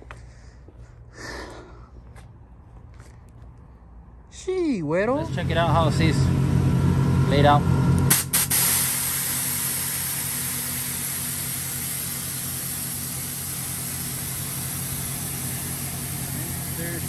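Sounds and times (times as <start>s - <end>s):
engine idling: 5.1s - 17.0s
air hissing from suspension: 8.1s - 17.0s.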